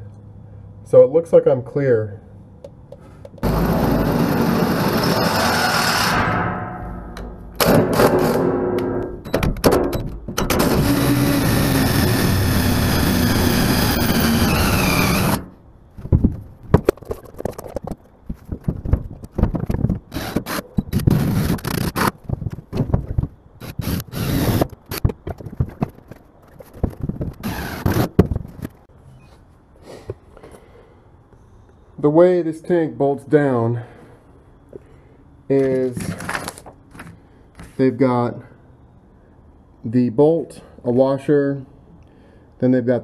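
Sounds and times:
cordless drill boring: 3.4s - 6.1s, 10.5s - 15.5s, 23.6s - 24.7s, 27.4s - 28.1s
knocks and clatter: 6.0s - 10.7s, 16.0s - 20.5s, 21.7s - 23.4s, 24.5s - 28.9s.

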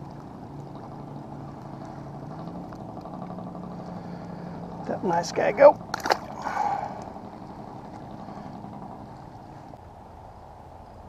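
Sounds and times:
low background rush: 0.0s - 11.0s
fish splashing into water: 5.8s - 7.2s.

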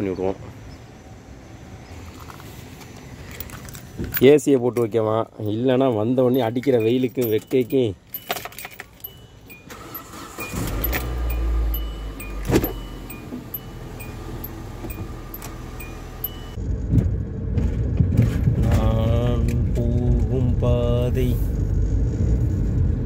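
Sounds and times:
car engine starting and idling: 5.5s - 22.8s
regular ticking: 5.9s - 16.6s.

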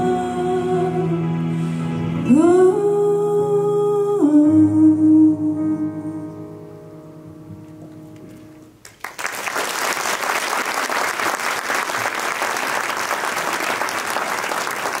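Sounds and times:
audience applause: 8.8s - 15.0s.

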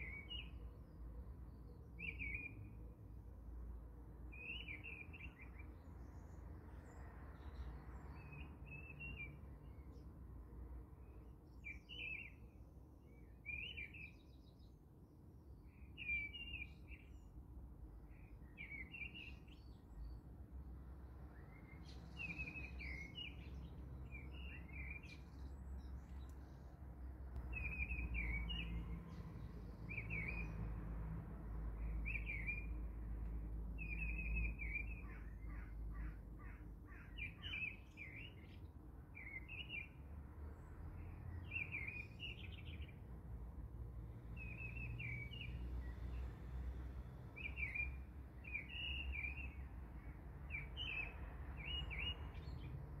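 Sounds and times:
small birds chirping: 21.3s - 26.8s, 27.4s - 30.7s, 31.8s - 40.0s, 40.6s - 43.1s, 44.3s - 46.5s, 47.3s - 53.0s.

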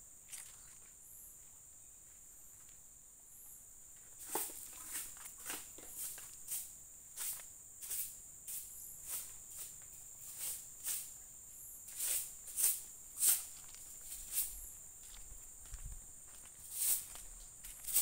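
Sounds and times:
high-pitched insect chorus: 0.0s - 18.0s
footsteps walking: 0.3s - 2.8s, 3.9s - 8.0s, 12.6s - 18.0s.

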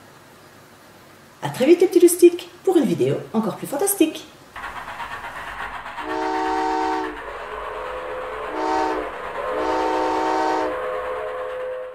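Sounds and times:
train rumble: 0.0s - 11.9s
steam train whistle: 6.0s - 11.9s.

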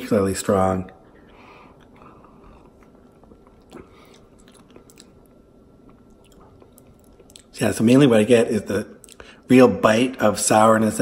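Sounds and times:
person sipping and swallowing: 1.7s - 7.5s
lip and tongue clicks: 2.6s - 7.5s.

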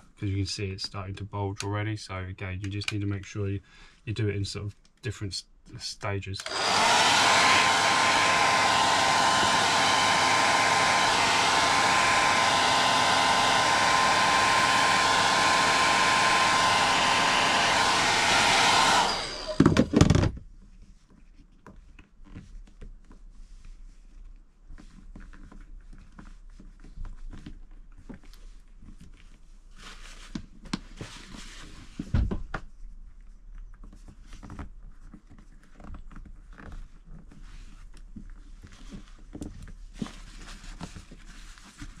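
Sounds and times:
hairdryer blowing: 6.4s - 20.2s
hairdryer put down knocks: 18.6s - 20.3s
rubbing and tapping on plastic trim: 19.7s - 42.0s.

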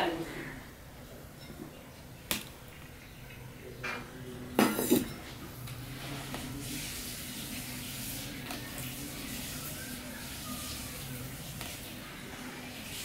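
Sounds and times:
metal bowl clattering: 3.8s - 5.4s.

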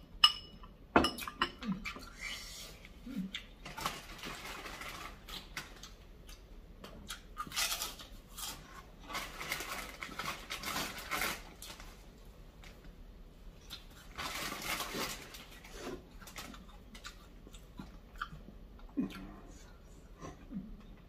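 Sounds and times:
person chewing: 1.7s - 3.6s, 5.2s - 8.9s, 13.6s - 14.2s, 14.9s - 21.0s.

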